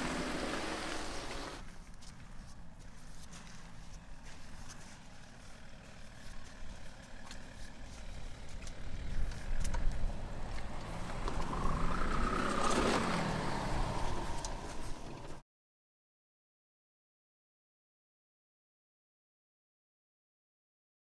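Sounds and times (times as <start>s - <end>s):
off-road vehicle engine rumbling: 0.0s - 15.4s.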